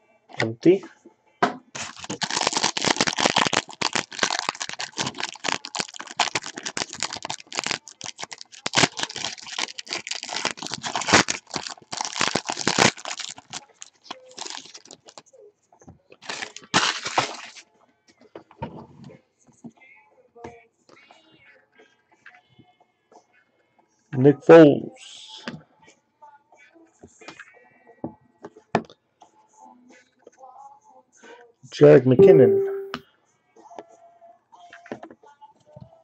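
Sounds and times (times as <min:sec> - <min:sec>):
foil wrapper crinkling: 0:01.8 - 0:15.2, 0:16.2 - 0:17.6.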